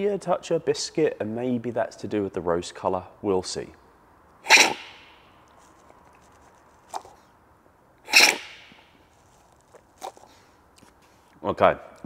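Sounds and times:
loud coffee slurp: 4.4 - 5.2, 8.1 - 8.8.

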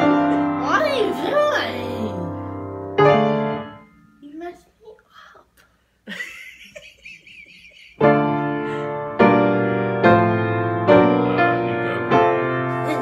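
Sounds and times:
piano chords ringing: 0.0 - 4.5, 8.0 - 13.0.

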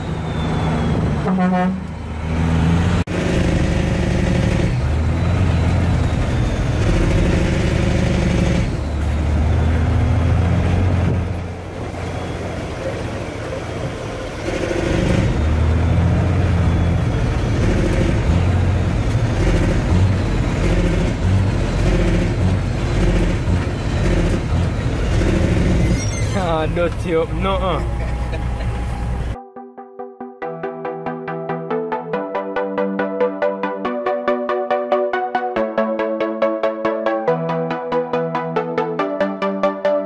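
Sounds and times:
truck engine pulling on road: 0.0 - 29.4.

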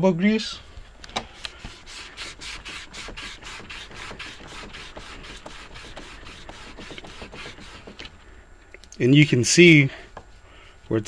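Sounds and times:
scrubbing on wooden panel: 1.4 - 8.1.

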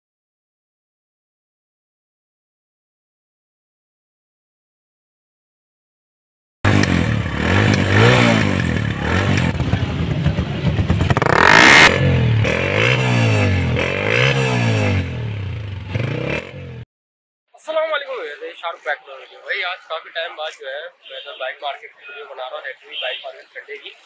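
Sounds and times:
motorcycle engine revving: 6.6 - 16.9.

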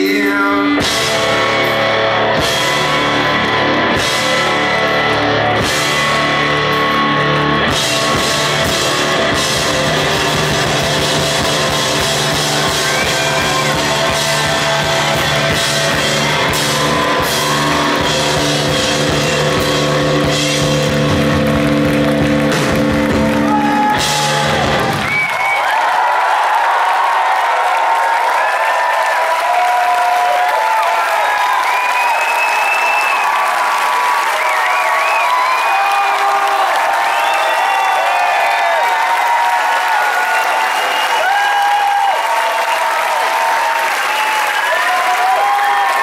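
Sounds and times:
drum kit: 0.0 - 25.6
electric guitars ringing: 0.8 - 25.0.

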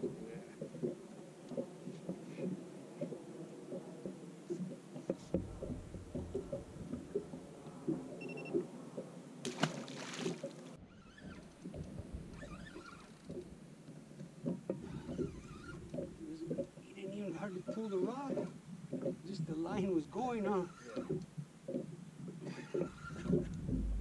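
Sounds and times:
small knocks on boat: 0.0 - 10.6
water lapping against boat hull: 0.0 - 24.0.

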